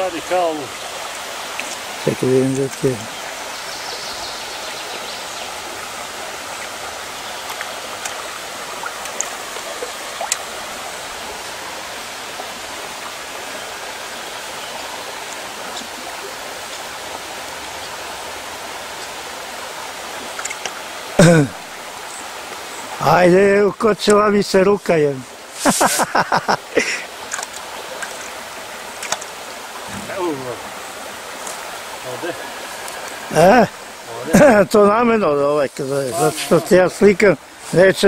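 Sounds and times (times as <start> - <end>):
flowing water rushing: 0.0 - 38.0
faint small clicks: 7.4 - 8.2, 9.0 - 9.4, 20.3 - 20.8, 27.3 - 28.3, 29.0 - 29.3.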